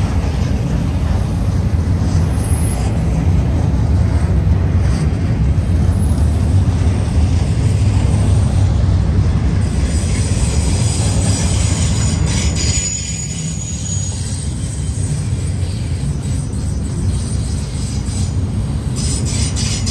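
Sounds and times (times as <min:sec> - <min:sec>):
freight train rumbling: 0:00.0 - 0:19.9
wheel squeal: 0:02.1 - 0:03.2, 0:09.8 - 0:19.9.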